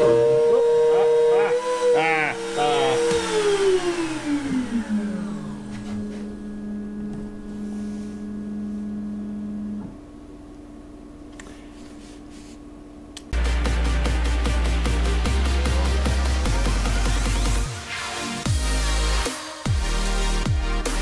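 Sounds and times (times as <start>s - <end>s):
cnc router spindle whining: 0.0s - 9.9s.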